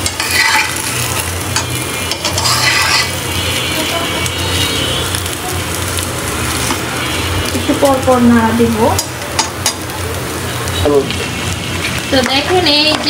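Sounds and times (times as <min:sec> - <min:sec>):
metal spatula scraping: 0:00.0 - 0:03.9
meat sizzling in a pan: 0:00.0 - 0:13.0.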